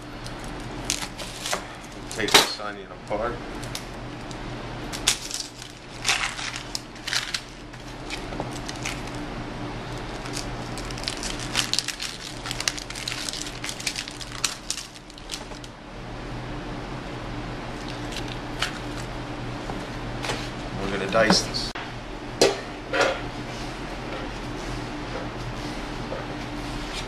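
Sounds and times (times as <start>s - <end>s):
onion skin crackling and tearing: 0.2s - 2.3s, 3.5s - 9.2s, 9.8s - 15.7s, 17.8s - 19.1s.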